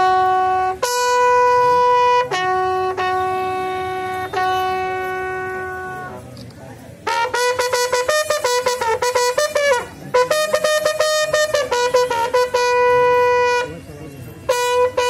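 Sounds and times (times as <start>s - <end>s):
bugle call: 14.5s - 15.0s.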